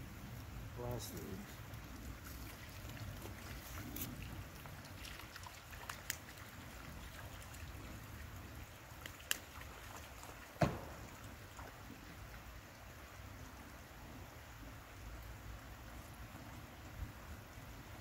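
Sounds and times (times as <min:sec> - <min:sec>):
water trickling: 0:00.0 - 0:18.0
knock: 0:10.6 - 0:11.0.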